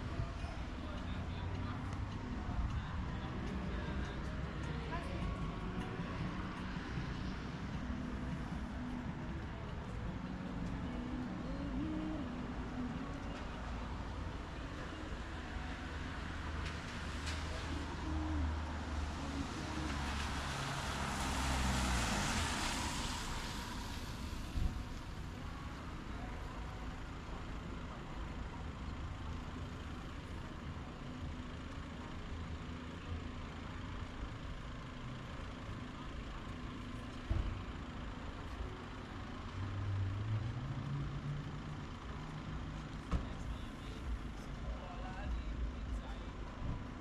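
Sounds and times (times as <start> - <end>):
vehicle accelerating: 0.0 - 25.3
passing vehicle engines rumbling: 0.0 - 47.0.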